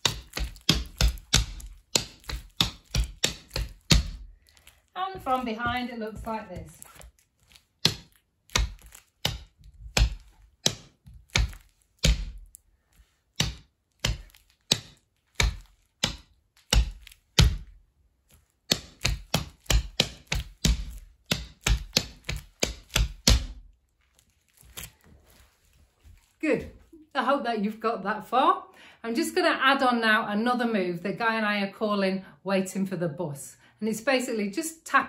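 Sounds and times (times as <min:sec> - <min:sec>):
shoes tapping on a board: 0:00.0 - 0:04.3, 0:05.0 - 0:07.1, 0:07.8 - 0:12.5, 0:13.4 - 0:17.7, 0:18.7 - 0:23.6.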